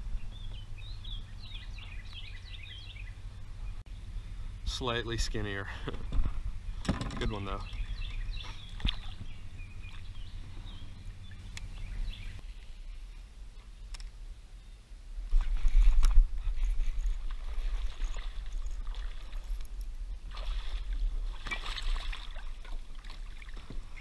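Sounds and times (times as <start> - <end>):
low rumble: 0.0 - 6.9, 7.6 - 21.8
water sloshing and splashing: 8.5 - 10.5, 15.4 - 24.0.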